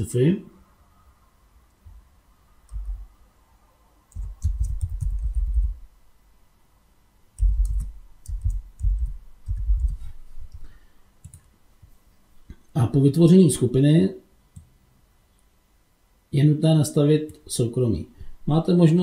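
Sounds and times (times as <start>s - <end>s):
typing on computer keyboard: 2.7s - 3.0s, 4.1s - 5.8s, 7.4s - 10.6s, 11.2s - 11.5s.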